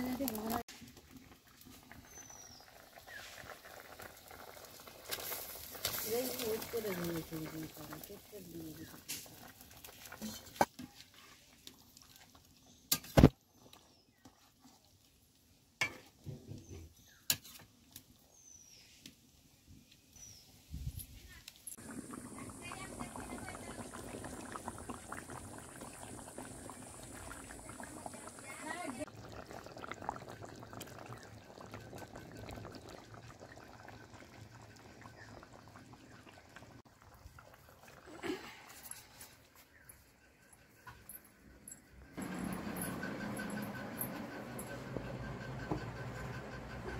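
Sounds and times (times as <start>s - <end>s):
curry bubbling with small pops: 0.0s - 18.4s, 21.4s - 39.9s.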